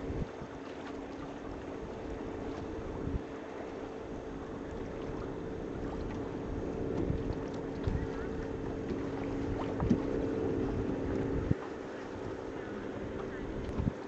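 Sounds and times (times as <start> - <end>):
wind noise on microphone: 0.0 - 0.6, 2.8 - 3.3, 6.9 - 11.6, 13.3 - 14.0
small boat motor running: 0.0 - 14.0
wash of water: 6.9 - 14.0.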